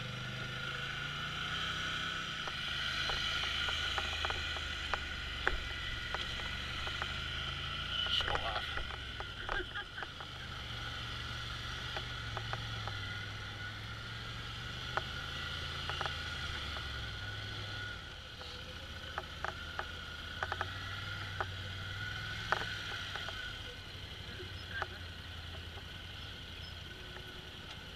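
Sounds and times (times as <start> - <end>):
atv engine running: 0.0 - 27.9.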